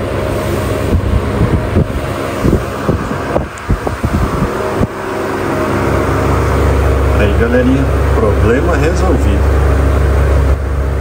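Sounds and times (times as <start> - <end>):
fan air rushing: 0.0 - 11.0
fan motor humming: 0.0 - 11.0.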